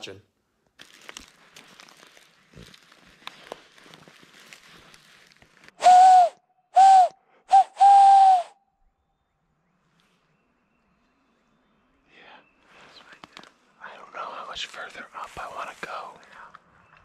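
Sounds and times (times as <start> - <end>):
rustling in dry leaves: 0.8 - 5.8.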